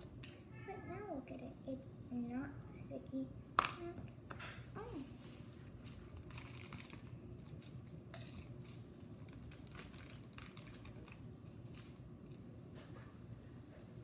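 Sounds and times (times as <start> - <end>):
plastic bag crinkling: 5.2 - 12.4.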